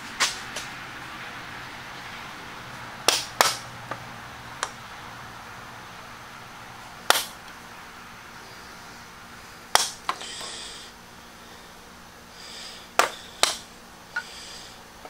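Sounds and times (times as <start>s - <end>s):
wood snapping: 3.1s - 3.6s, 7.1s - 7.6s, 9.7s - 10.2s, 13.0s - 13.6s.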